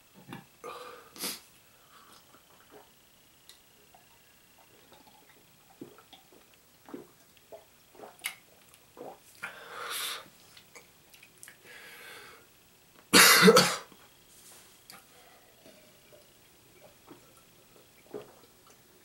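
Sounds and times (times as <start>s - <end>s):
man gulping liquid: 2.2s - 9.6s, 15.6s - 18.8s
man coughing: 13.2s - 13.9s.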